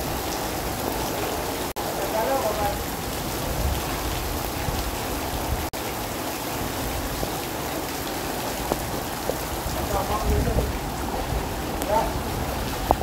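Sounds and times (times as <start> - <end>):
rain falling on standing water: 0.0 - 13.0.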